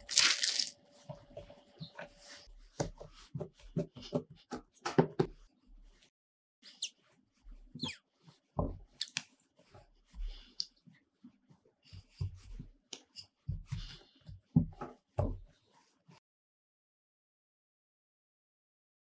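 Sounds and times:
rolling pin thumping on dough: 2.7s - 5.4s, 8.4s - 9.0s, 13.4s - 15.5s.

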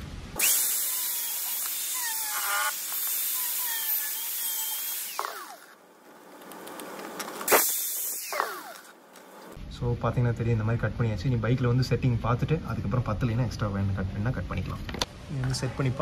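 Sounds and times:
power tool cutting plastic: 0.4s - 5.8s, 6.5s - 9.0s.

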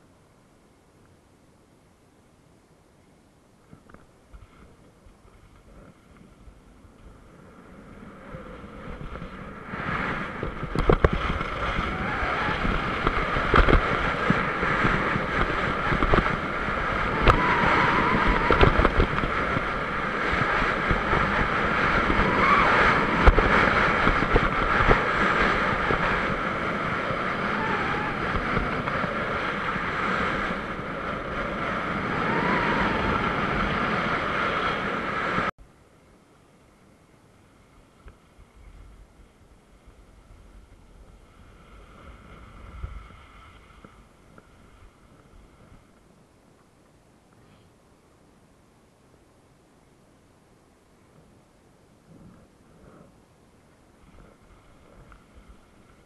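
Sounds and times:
wind on microphone: 3.7s - 35.5s, 37.6s - 46.4s, 51.1s - 56.0s
skis scraping over snow: 4.3s - 35.5s, 37.6s - 46.1s, 53.8s - 56.0s.

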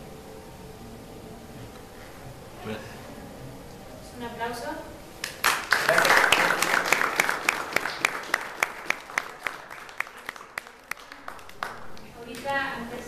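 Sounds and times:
audience applauding: 5.2s - 12.5s.

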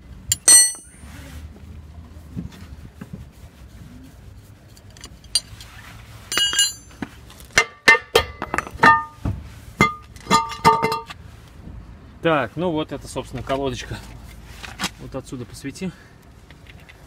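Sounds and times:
metallic clanks with ringing: 0.3s - 1.0s, 6.3s - 6.9s, 7.6s - 9.2s, 9.8s - 11.1s.

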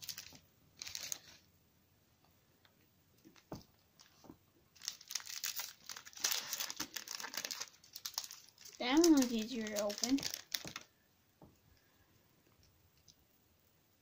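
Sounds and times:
foil wrapper crinkling and tearing: 0.0s - 1.4s, 4.8s - 10.9s.

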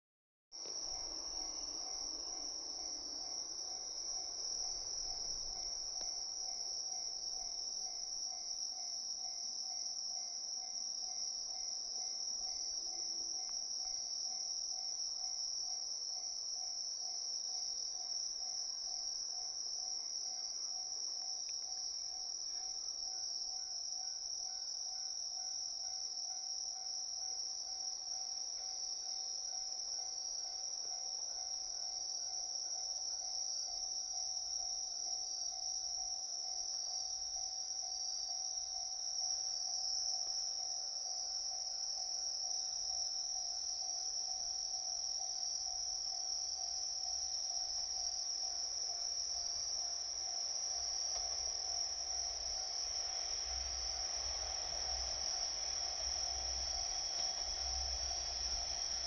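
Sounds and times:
low steady tone: 0.6s - 39.8s, 40.8s - 59.0s
crickets trilling: 0.6s - 59.0s.

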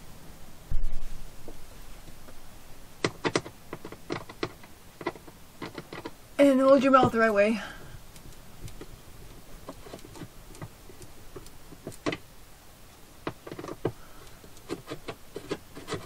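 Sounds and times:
screwdriver turning screw: 3.0s - 6.2s, 8.1s - 12.2s, 13.2s - 16.0s.

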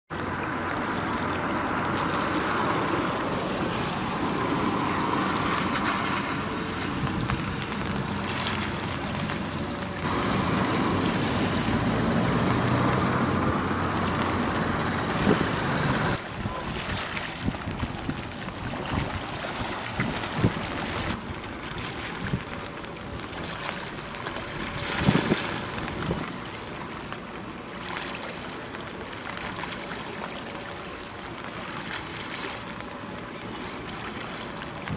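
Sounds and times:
waves lapping: 0.1s - 34.9s
wind buffeting microphone: 1.0s - 26.3s.

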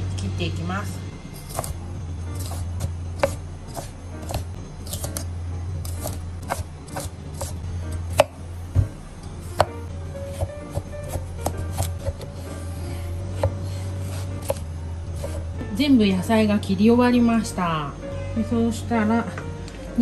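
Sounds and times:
steady low hum: 0.0s - 20.0s
knife chopping on wooden board: 1.5s - 1.8s, 2.4s - 9.0s, 9.6s - 12.6s, 13.3s - 14.6s, 15.2s - 15.5s.

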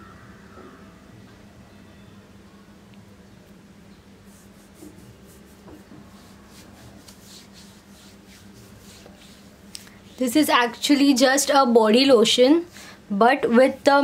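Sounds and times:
low steady hum: 0.0s - 14.0s
hand rubbing lotion on skin: 4.2s - 11.3s.

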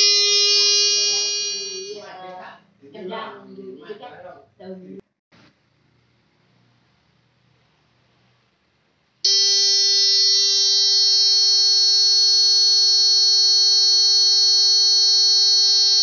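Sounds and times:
electronic buzzer buzzing: 0.0s - 2.1s, 9.3s - 16.0s.

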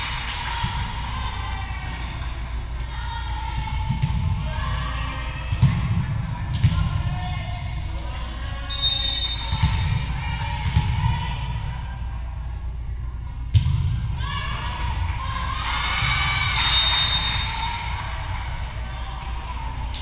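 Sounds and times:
ball bouncing on gym floor: 3.6s - 4.4s, 5.5s - 7.1s, 9.4s - 11.2s, 13.5s - 14.1s.

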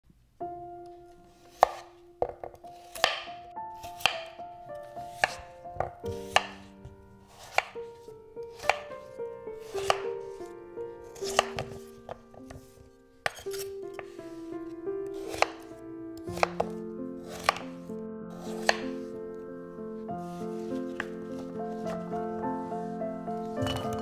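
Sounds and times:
soft background music: 0.4s - 24.0s
knife slicing potatoes: 1.3s - 19.1s, 20.2s - 22.6s, 23.4s - 24.0s
blade knocking on cutting board: 15.3s - 15.6s, 16.3s - 16.7s.

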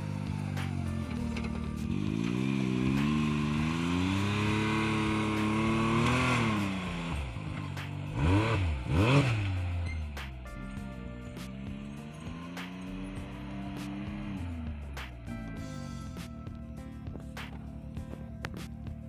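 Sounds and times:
engine pulling under load: 0.0s - 10.4s
engine revving sharply: 1.8s - 9.6s.

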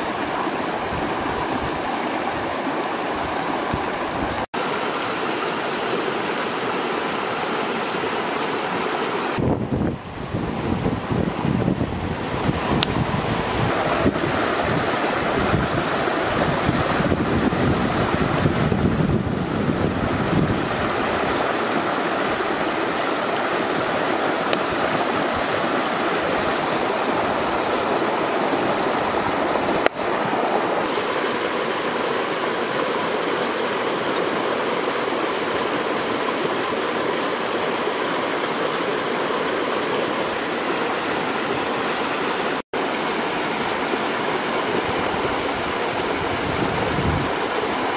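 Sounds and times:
river flowing over rocks: 0.0s - 47.9s
wind buffeting microphone: 9.4s - 29.9s, 44.6s - 47.9s.

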